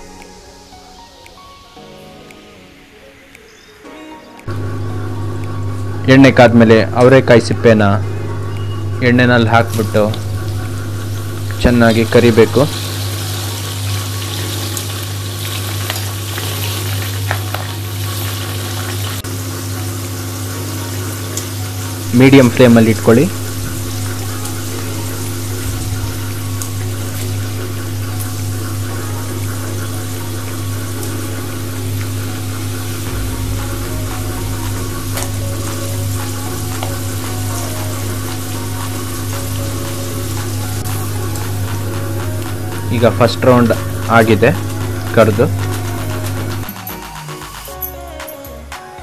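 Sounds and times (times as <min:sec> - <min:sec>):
steady low hum: 0:04.5 - 0:46.7
food deep-frying in hot oil: 0:09.7 - 0:46.6.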